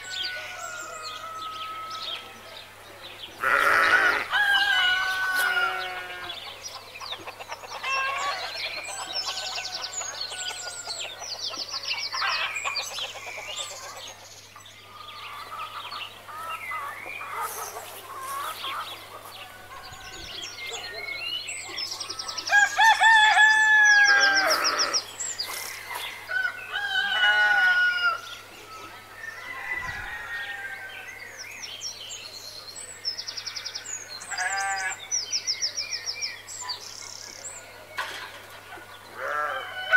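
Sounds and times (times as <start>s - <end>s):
hens clucking: 3.4s - 14.2s, 15.0s - 20.9s
rooster crowing: 4.0s - 6.4s, 22.4s - 25.0s, 26.3s - 28.2s, 29.2s - 31.1s, 39.3s - 39.9s
small birds chirping: 5.0s - 23.0s, 23.9s - 26.3s.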